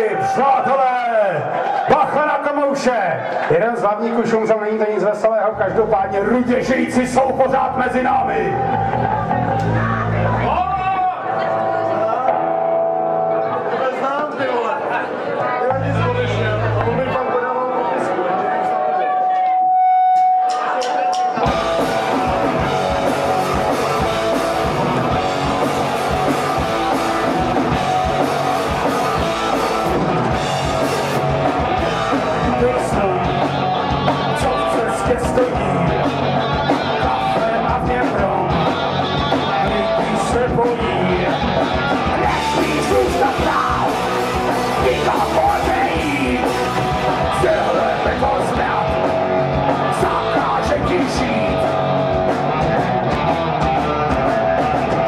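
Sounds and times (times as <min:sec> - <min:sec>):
live rock band playing: 0:00.0 - 0:55.0
man shouting vocals: 0:42.2 - 0:44.0, 0:44.8 - 0:49.1, 0:49.8 - 0:51.7.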